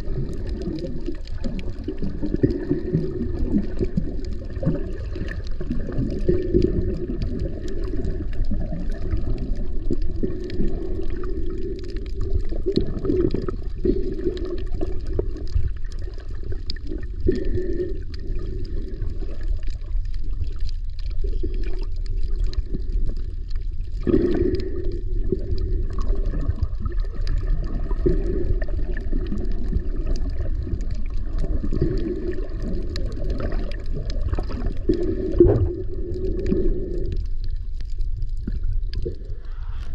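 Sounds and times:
underwater water rumble: 0.0 - 39.9
faint ticks: 0.3 - 39.9.

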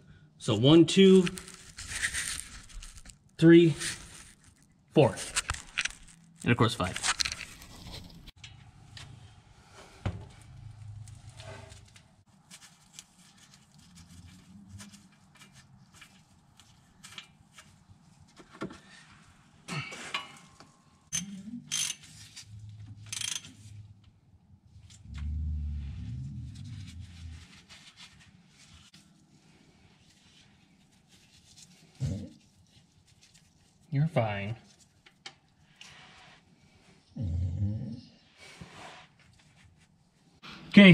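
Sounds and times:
wrench clicks and clinks: 21.1 - 22.2, 23.0 - 23.6.

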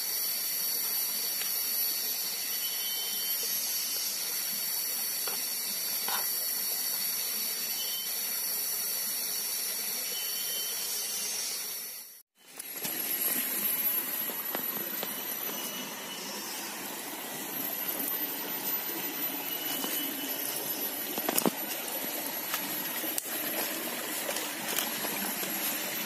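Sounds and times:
stream flowing over rocks: 12.6 - 26.0.

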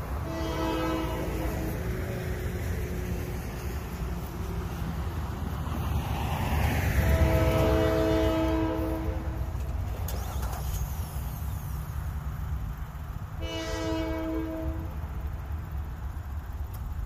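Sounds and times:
distant locomotive air horn: 0.0 - 1.9, 6.9 - 9.6, 13.4 - 15.0
vehicle passing: 0.0 - 11.7
low rumble of road traffic: 0.0 - 17.0.

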